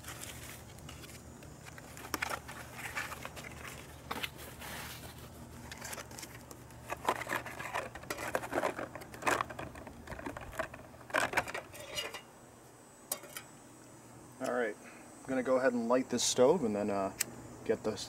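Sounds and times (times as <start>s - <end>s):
aluminium foil crinkling: 0.0s - 12.2s.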